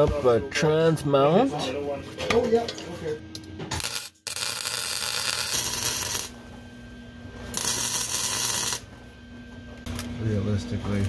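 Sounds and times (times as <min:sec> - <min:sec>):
arc welding crackling and hissing: 0:03.7 - 0:06.4, 0:07.5 - 0:08.9.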